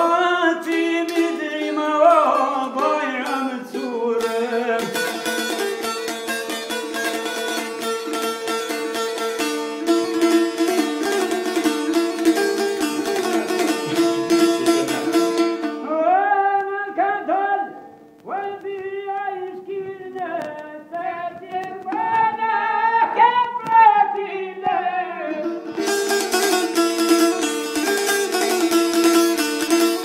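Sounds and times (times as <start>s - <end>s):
person singing: 0.0s - 5.8s, 12.8s - 25.9s
plucked string instrument: 0.0s - 30.0s.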